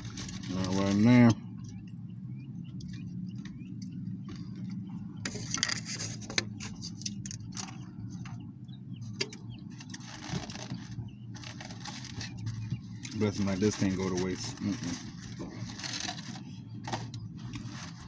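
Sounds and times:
steady low hum: 0.0s - 18.0s
paper wrapper crinkling: 10.0s - 12.4s.

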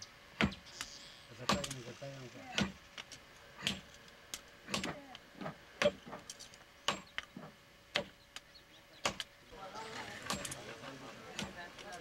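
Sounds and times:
hammer striking hot iron on anvil: 1.4s - 1.8s, 6.9s - 7.2s.

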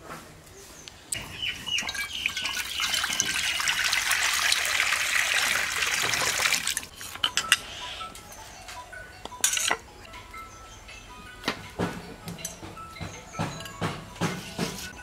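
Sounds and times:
water pouring and splashing: 1.2s - 6.9s.

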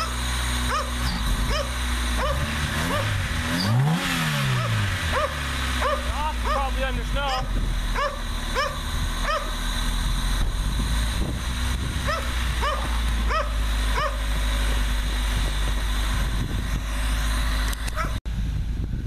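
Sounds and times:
car engine idling: 0.0s - 19.0s
dog barking: 0.7s - 3.2s, 4.5s - 9.6s, 12.1s - 14.3s, 17.9s - 18.2s.

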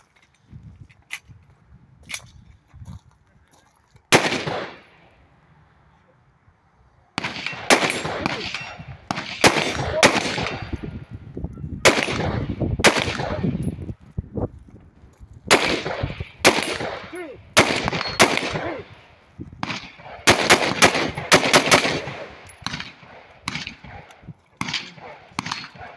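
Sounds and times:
rapid gunshots with echo: 7.2s - 10.9s, 11.8s - 13.6s, 15.5s - 19.0s, 19.6s - 25.9s.

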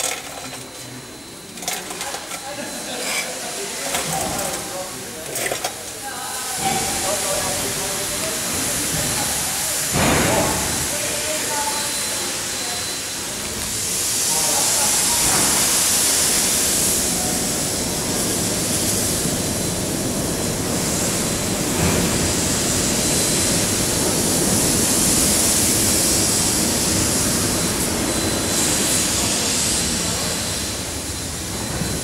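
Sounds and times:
steam venting hiss: 1.0s - 32.0s.

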